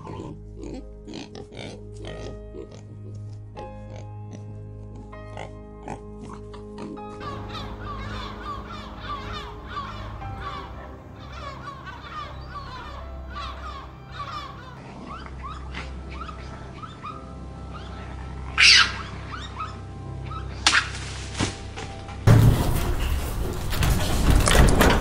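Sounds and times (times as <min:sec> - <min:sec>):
soft background music: 0:00.0 - 0:23.4
birds chirping: 0:07.0 - 0:20.7.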